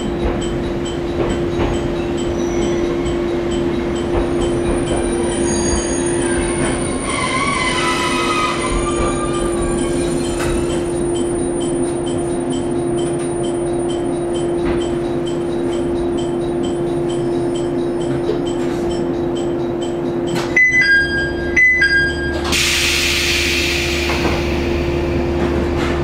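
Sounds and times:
two-note door chime: 20.3s - 22.6s.

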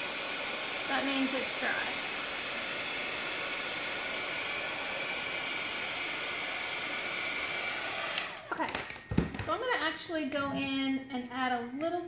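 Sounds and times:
heat tool blowing hiss: 0.0s - 8.5s.

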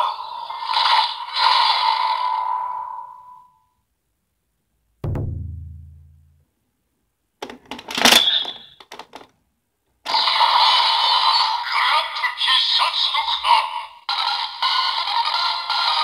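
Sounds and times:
deep booming tone: 5.0s - 6.6s
plastic toy clicks and snap: 7.4s - 9.3s
toy voice announcement: 11.6s - 14.0s.

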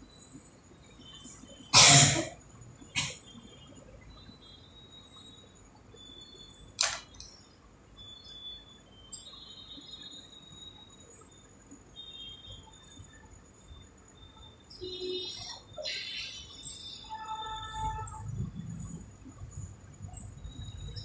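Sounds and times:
glass bangles clinking: 6.6s - 11.4s, 12.0s - 21.0s
sharp click: 6.8s - 7.3s.

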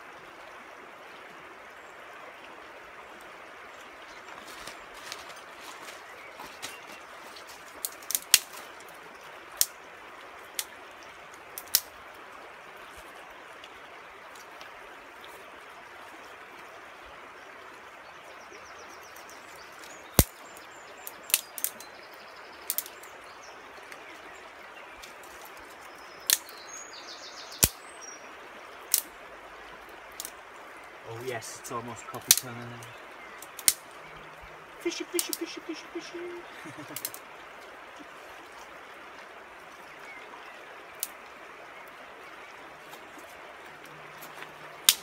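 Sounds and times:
river water rushing: 0.0s - 45.0s
sharp cracks: 7.8s - 8.6s, 11.6s - 11.9s, 20.2s - 20.4s, 22.7s - 22.9s, 27.5s - 27.8s, 32.2s - 32.8s, 33.4s - 34.0s, 34.9s - 37.2s
faint bird chirps: 31.0s - 37.1s.

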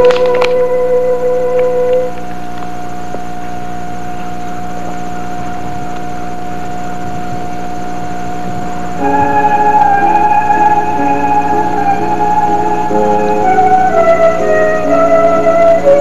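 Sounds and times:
instrumental music: 0.0s - 2.8s, 9.0s - 16.0s
film soundtrack hum and hiss: 0.0s - 16.0s
high steady tone: 0.0s - 16.0s.

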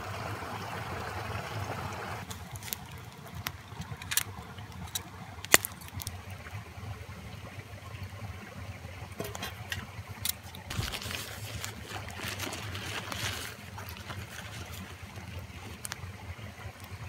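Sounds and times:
flowing water: 0.0s - 17.0s
metal cookware clanking: 9.2s - 9.9s
rustling hiss: 9.3s - 17.0s.

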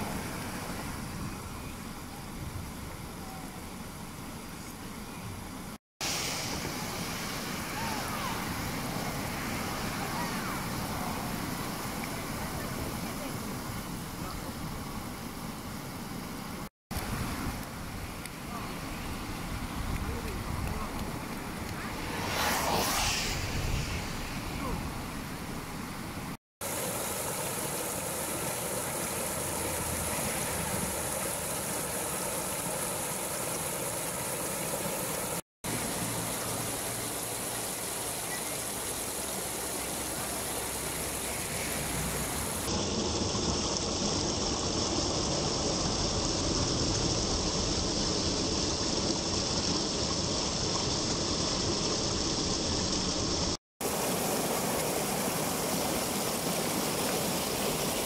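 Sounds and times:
floodwater rushing over rocks: 0.0s - 1.3s, 6.0s - 15.6s, 16.2s - 58.0s
water spilling into pool: 6.0s - 24.8s, 26.6s - 58.0s.

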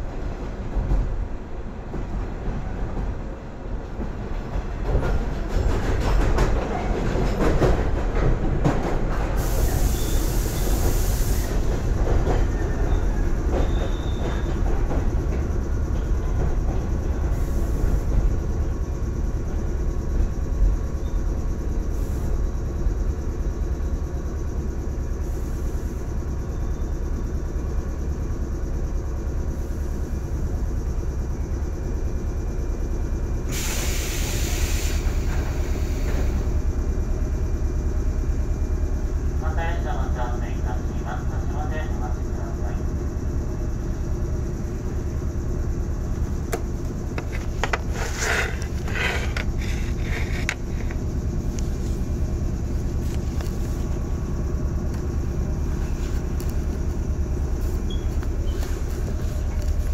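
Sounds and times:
clickety-clack of rail joints: 0.0s - 20.8s, 33.4s - 36.7s
train running rumble: 0.0s - 59.9s
air hiss bursts: 9.4s - 11.7s, 33.5s - 36.1s.

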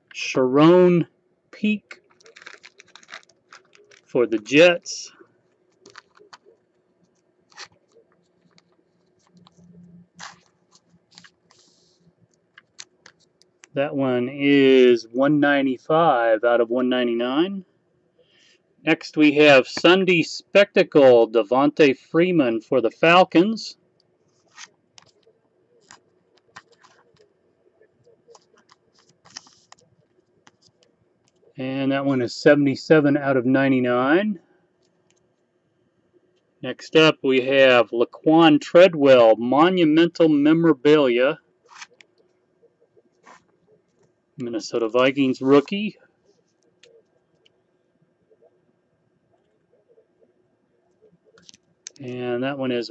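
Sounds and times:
card clicks and scrapes: 5.8s - 13.7s, 24.3s - 27.3s, 28.3s - 29.8s, 41.6s - 42.1s, 43.2s - 43.5s.

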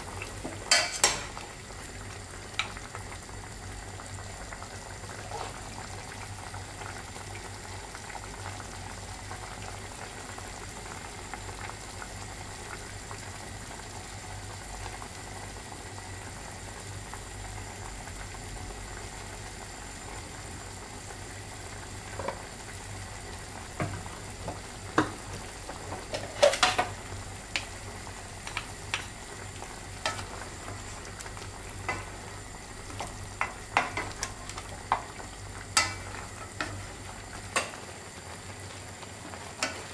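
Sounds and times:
sauce bubbling in a pot: 0.0s - 39.9s.

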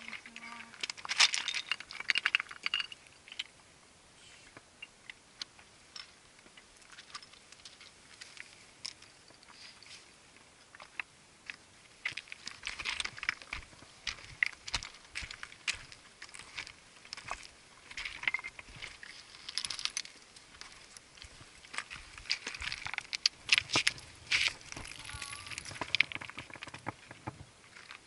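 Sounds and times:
stones clicking underfoot: 0.0s - 3.5s, 10.6s - 28.0s
boots stepping on rock and scree: 12.1s - 28.0s.

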